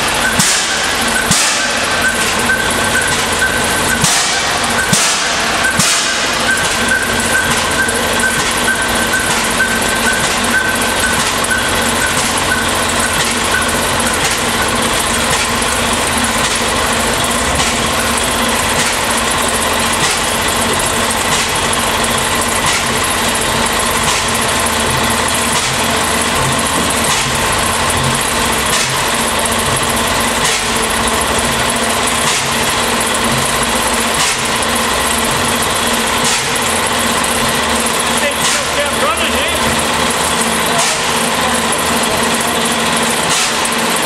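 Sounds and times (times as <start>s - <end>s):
air compressor clattering: 0.0s - 44.0s.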